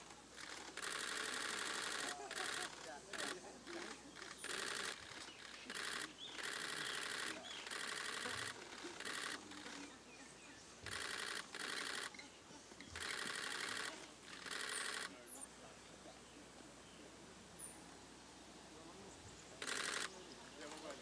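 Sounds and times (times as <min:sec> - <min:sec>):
camera shutter clicks: 0:00.4 - 0:09.9, 0:10.8 - 0:15.2, 0:19.6 - 0:20.2.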